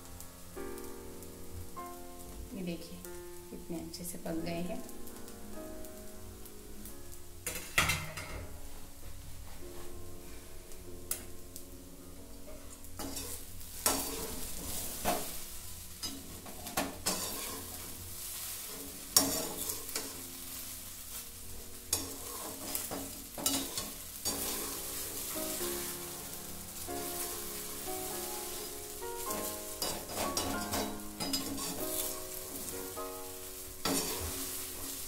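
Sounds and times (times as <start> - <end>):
food sizzling in pan: 0.0 - 35.0
metal spatula scraping metal pan: 13.0 - 15.4, 16.0 - 20.2, 21.9 - 25.4, 29.2 - 32.7, 33.8 - 34.9.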